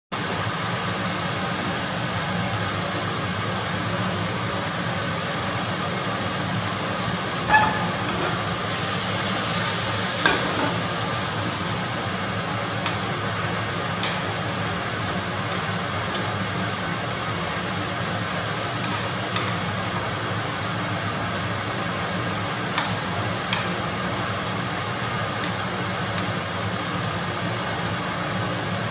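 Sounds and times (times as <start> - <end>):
scallops sizzling in a pan: 6.1 - 26.6.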